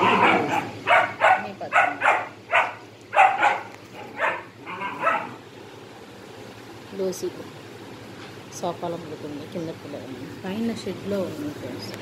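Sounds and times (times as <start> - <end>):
dog barking: 0.0 - 5.4.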